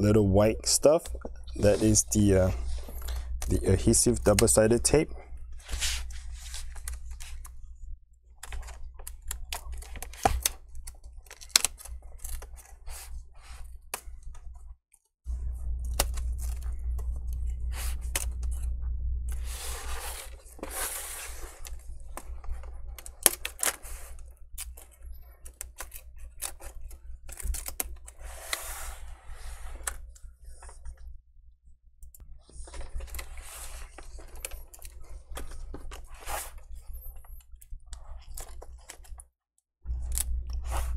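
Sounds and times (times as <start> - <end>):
low steady hum: 0.0 - 14.7, 15.3 - 31.2, 39.9 - 40.9.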